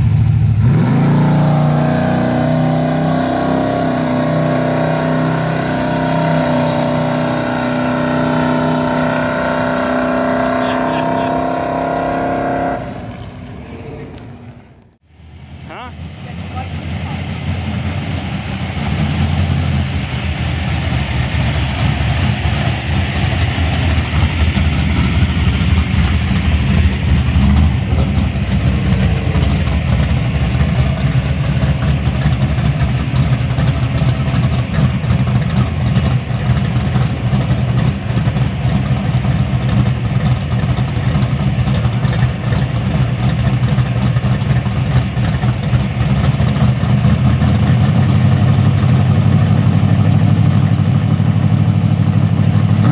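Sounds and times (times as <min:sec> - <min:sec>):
car engine idling: 0:00.0 - 0:52.9.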